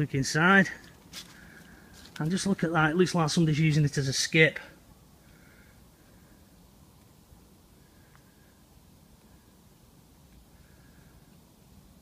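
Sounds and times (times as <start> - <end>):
faint background hiss: 0.0 - 12.0.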